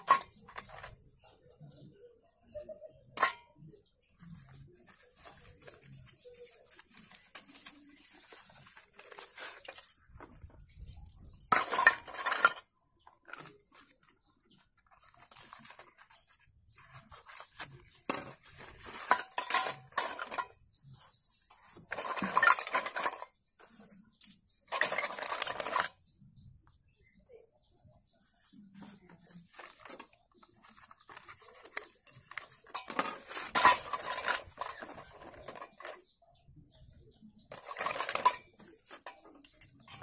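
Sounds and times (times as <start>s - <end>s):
pencils clattering into metal bowl: 0.0s - 1.8s, 3.0s - 26.2s, 28.4s - 36.2s, 36.8s - 40.0s
cardboard boxes handling: 13.2s - 20.4s.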